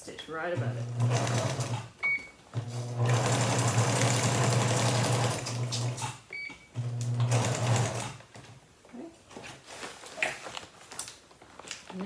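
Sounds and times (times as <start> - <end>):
electric sewing machine stitching: 0.6 - 1.9, 2.6 - 6.2, 6.8 - 8.2.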